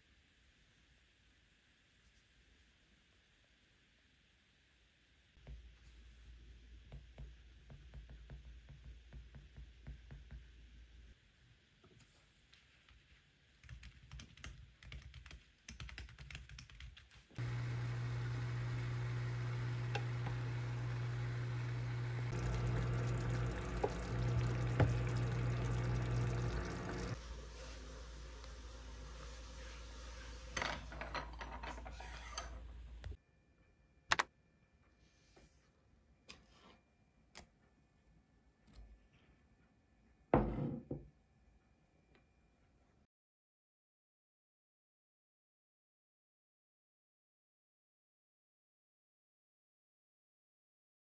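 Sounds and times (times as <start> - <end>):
low room hum: 17.4 - 29.8.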